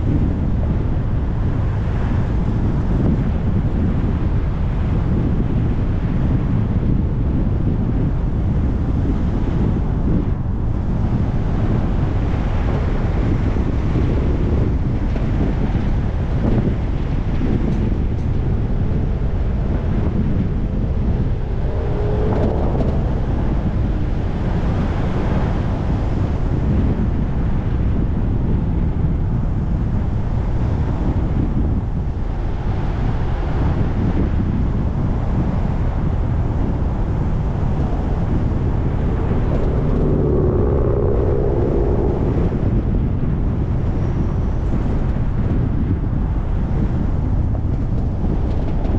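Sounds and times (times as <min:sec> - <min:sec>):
road and wind noise: 0:00.0 - 0:48.9
faint humming tone: 0:17.4 - 0:25.2, 0:37.5 - 0:45.2.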